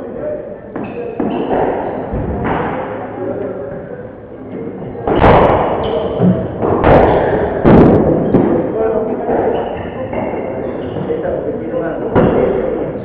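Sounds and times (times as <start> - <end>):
steady court hum: 0.0 - 13.0
squash ball hitting walls: 0.8 - 3.1, 5.0 - 10.3.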